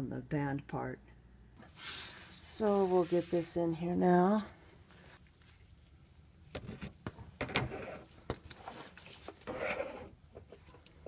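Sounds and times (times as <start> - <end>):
hose scraping against metal: 1.7 - 3.5.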